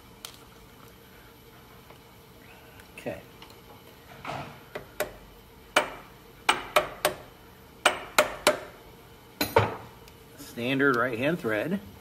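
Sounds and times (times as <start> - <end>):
mallet knocking on a wrench: 5.8 - 7.2, 7.8 - 8.7.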